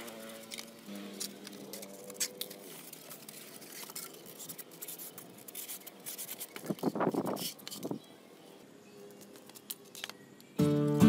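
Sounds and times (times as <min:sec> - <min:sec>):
foam crackling and scraping: 0:00.0 - 0:08.0
squeaky foam rubbing: 0:00.2 - 0:08.0.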